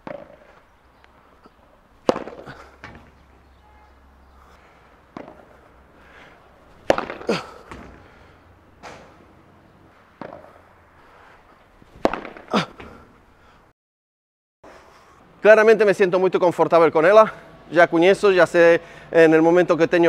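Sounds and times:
padel ball struck by racket: 0.0 - 0.5, 2.0 - 3.3, 5.1 - 5.7, 6.7 - 8.1, 10.2 - 10.6, 12.0 - 12.9
ball bouncing: 0.0 - 0.6, 1.4 - 3.5, 5.1 - 5.7, 6.7 - 8.2, 10.2 - 10.6, 12.0 - 13.0.

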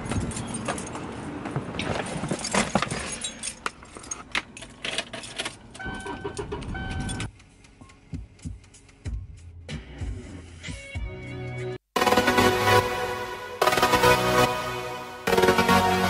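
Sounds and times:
car keys jangling: 2.3 - 9.0.

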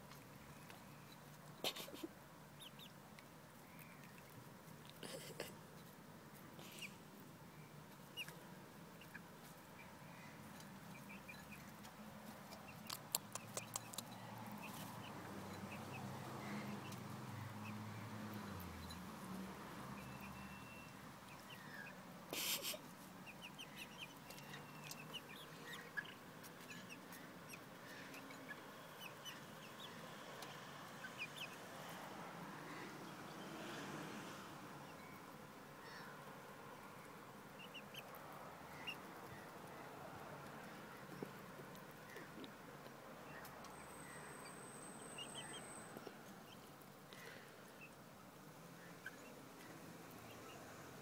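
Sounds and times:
chicks cheeping and clucking: 0.1 - 5.9, 6.6 - 7.0, 7.9 - 31.6, 37.1 - 39.7, 48.9 - 49.4.

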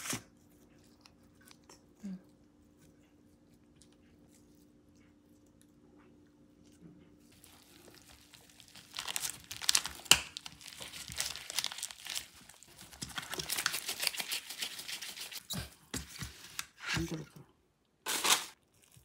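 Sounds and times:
food packaging crinkling: 7.3 - 15.5, 18.0 - 19.0.

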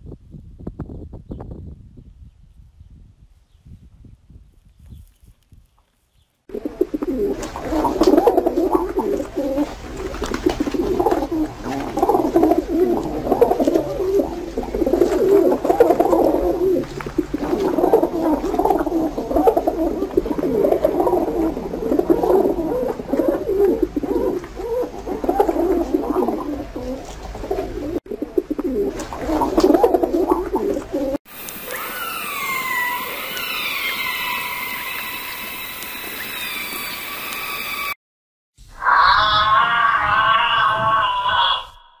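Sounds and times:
pigeons cooing: 6.5 - 35.6.

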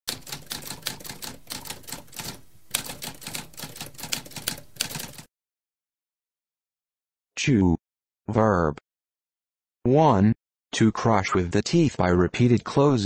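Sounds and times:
typewriter keys clacking: 0.1 - 5.3.

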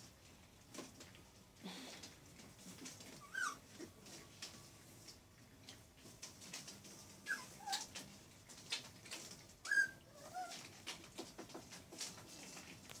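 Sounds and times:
puppies squealing and yelping: 3.1 - 3.7, 7.2 - 8.0, 9.6 - 10.7.

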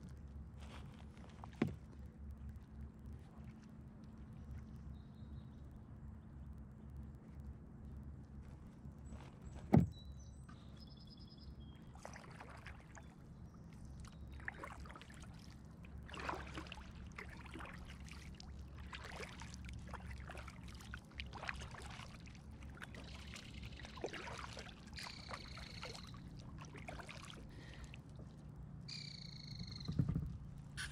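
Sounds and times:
kayak paddle strokes in water: 0.0 - 2.1, 11.9 - 13.2, 13.9 - 28.5
low steady rumble: 0.0 - 12.0.

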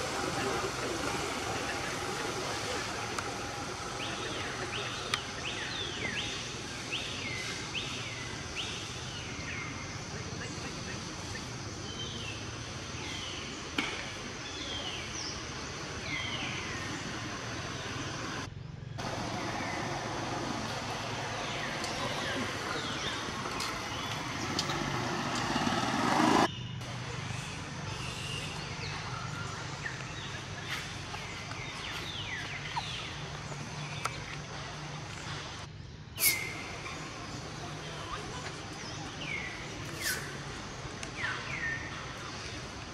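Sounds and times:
steady low hum: 0.0 - 42.9.

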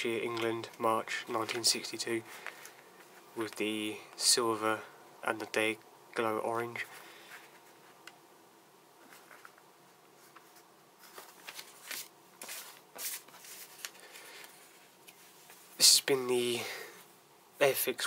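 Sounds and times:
paper rustling and crinkling: 1.4 - 1.7, 10.2 - 15.6.

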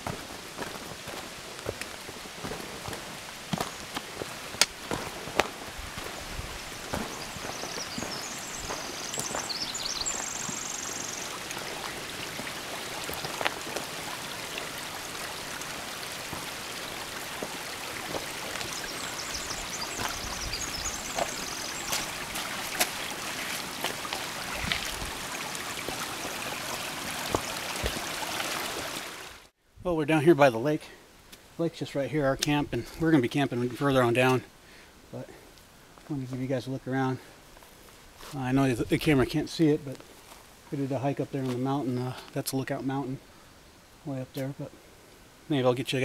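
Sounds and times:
footsteps crunching on gravel: 0.0 - 14.0, 16.2 - 26.4, 37.6 - 38.4
creek running over rocks: 0.0 - 29.5, 31.5 - 43.3
boots clicking on stone: 6.9 - 10.6.

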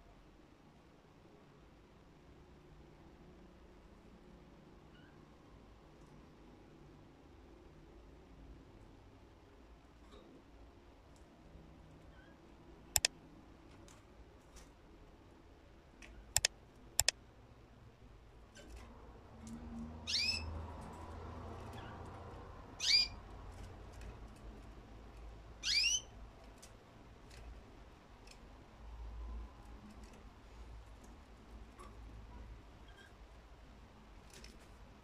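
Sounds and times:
canary chirping: 4.9 - 5.3, 19.9 - 24.1, 25.5 - 26.2
sharp clicks: 13.0 - 13.2, 16.3 - 17.2.

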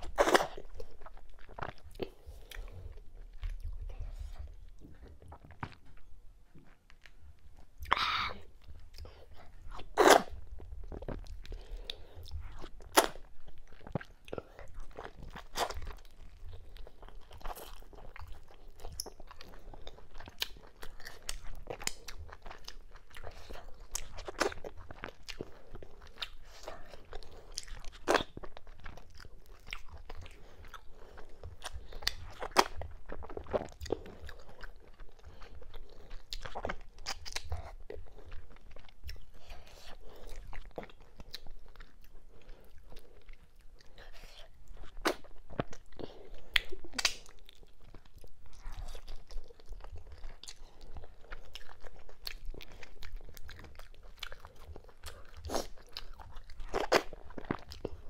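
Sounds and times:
chewing and biting food: 0.0 - 58.0.

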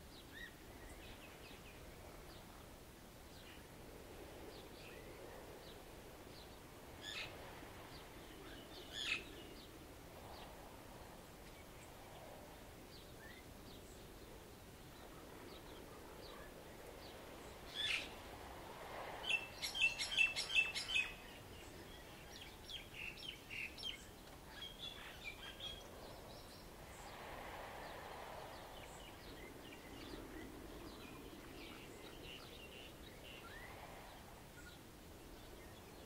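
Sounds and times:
waves washing: 14.3 - 22.2, 25.9 - 31.6
birds chirping: 19.2 - 27.1.

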